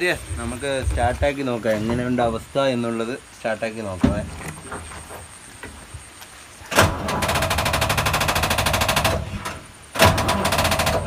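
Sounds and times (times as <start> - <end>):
starter motor cranking engine: 6.7 - 11.0.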